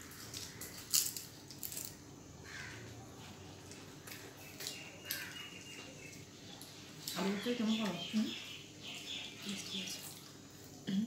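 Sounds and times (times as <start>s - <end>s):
chewing crunches: 3.6s - 7.2s.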